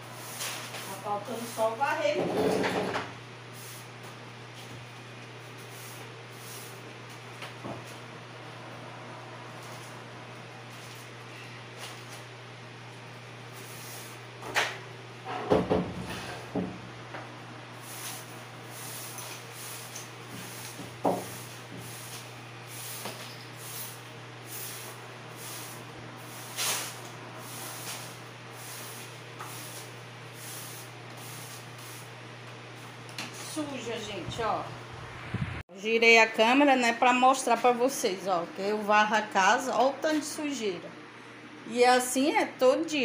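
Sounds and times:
broom sweeping gritty floor: 0.0s - 2.6s, 3.5s - 8.0s, 9.6s - 12.4s, 13.5s - 14.2s, 17.8s - 34.5s.

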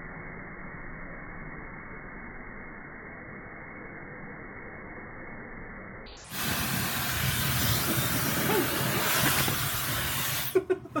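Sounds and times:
hair dryer blowing: 6.3s - 11.0s.

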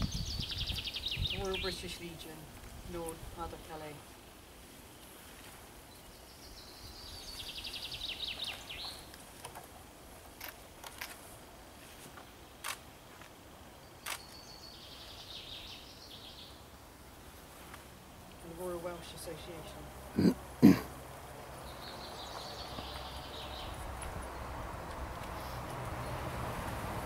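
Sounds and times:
faint outdoor background noise: 0.0s - 27.0s.

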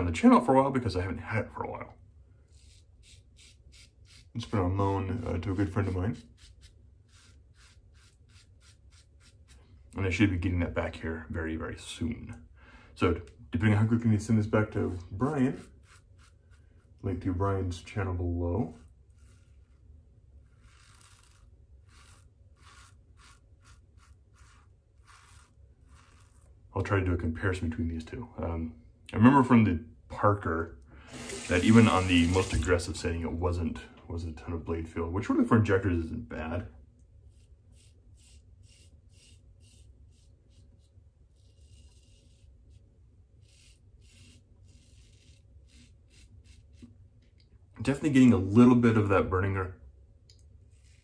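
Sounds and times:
razor scratching stubble: 2.5s - 4.6s, 5.2s - 9.6s, 14.7s - 17.0s, 18.7s - 26.5s, 37.2s - 46.9s, 50.6s - 51.0s.

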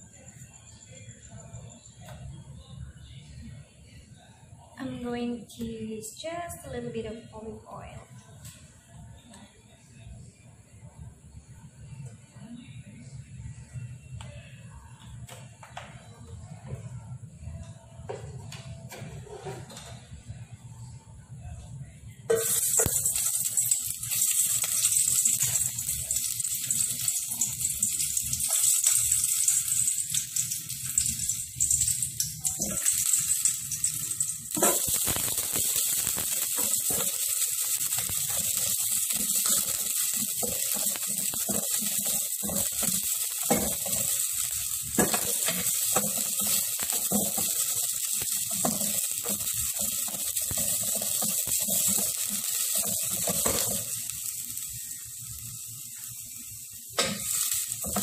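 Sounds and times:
onions sizzling in oil: 22.3s - 58.0s.

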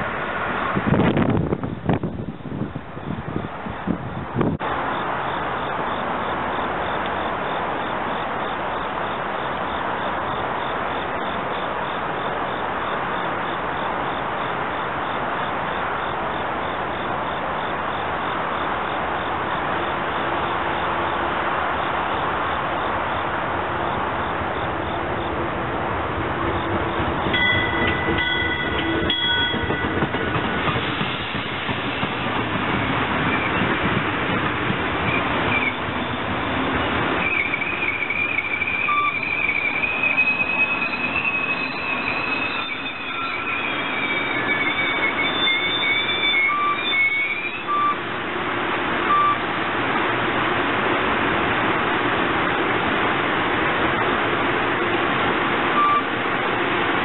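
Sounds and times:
train approaching rush: 0.0s - 57.0s
train coaches clattering past: 4.6s - 57.0s
train horn: 27.3s - 30.3s.

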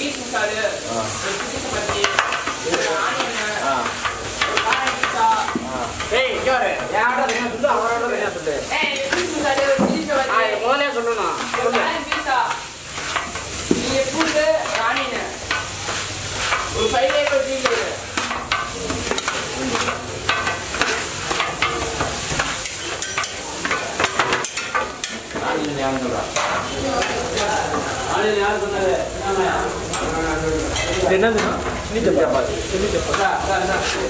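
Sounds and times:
food sizzling: 0.0s - 34.0s
metal spatula clanking on griddle: 1.4s - 6.2s, 11.4s - 27.8s, 30.7s - 31.8s.

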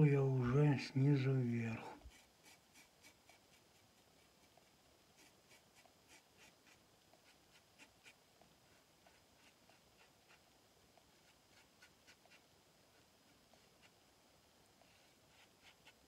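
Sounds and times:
razor scraping stubble: 2.0s - 4.6s, 5.2s - 8.2s.

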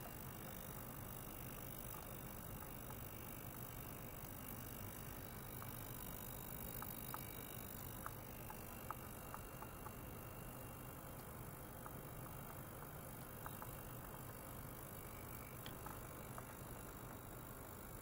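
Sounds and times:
ultrasonic cleaner hiss and hum: 0.0s - 18.0s.

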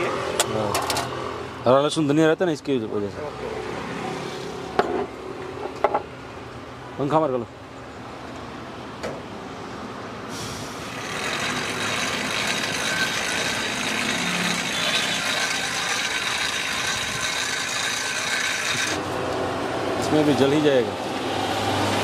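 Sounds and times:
air blower running: 10.5s - 20.1s.

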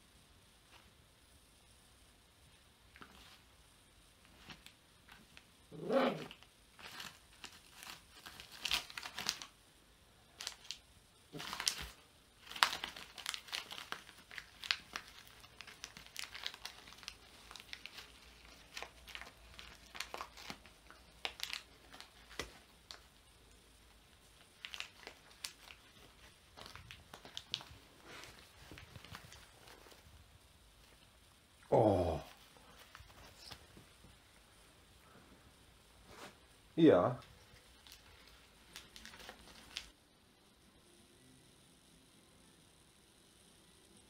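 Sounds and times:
dog tearing paper: 5.8s - 9.5s, 10.4s - 23.0s, 24.6s - 29.4s.

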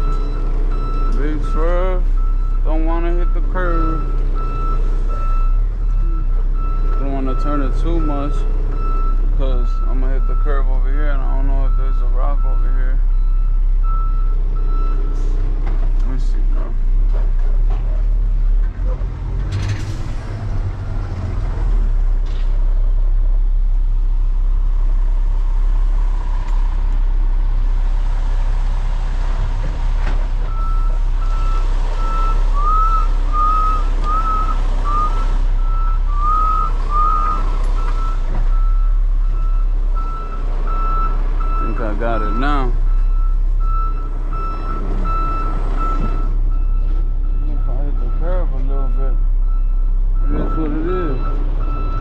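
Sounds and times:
backup alarm beeping: 0.0s - 15.2s, 30.5s - 52.0s
diesel truck engine rumble: 0.0s - 52.0s.

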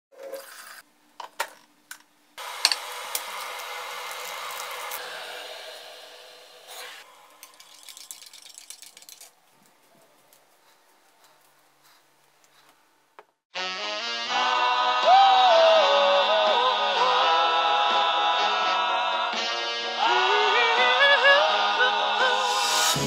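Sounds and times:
kettle clicks: 1.2s - 4.9s
water pouring into a mug: 7.0s - 9.3s.

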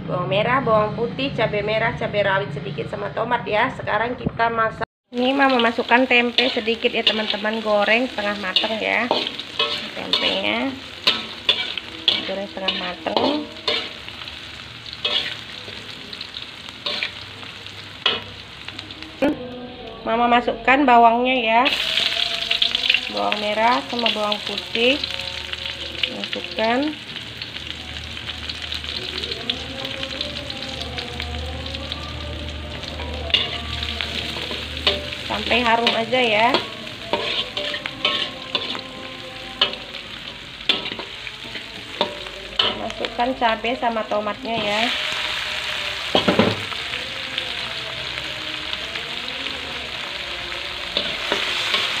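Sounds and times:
food sizzling in hot oil: 5.1s - 19.4s, 21.6s - 52.0s
spatula scraping wok: 5.4s - 19.2s, 32.4s - 49.0s, 49.9s - 52.0s.

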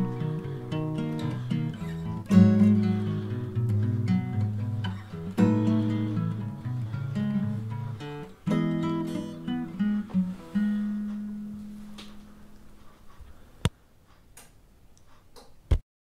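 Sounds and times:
acoustic guitar strumming: 0.0s - 12.8s.

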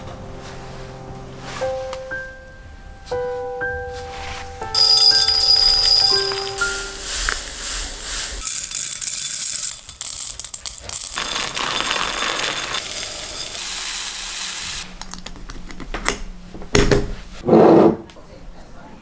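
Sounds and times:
seeds pouring into glass jars: 4.7s - 14.8s.

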